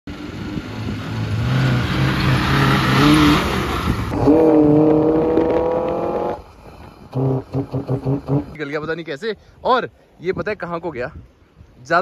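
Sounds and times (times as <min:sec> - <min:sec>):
off-road vehicle engine: 0:00.1 - 0:08.8.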